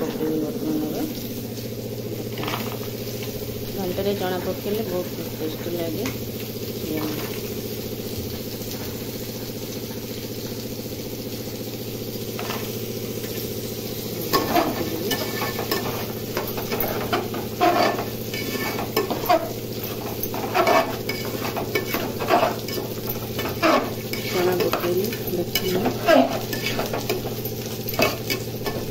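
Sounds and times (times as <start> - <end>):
thick sauce sizzling: 0.0 - 28.9
metal spoon scraping a pot: 14.3 - 28.9.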